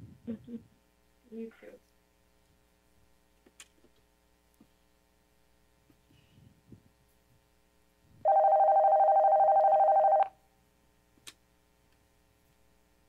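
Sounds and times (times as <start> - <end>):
telephone ringing: 8.2 - 10.4.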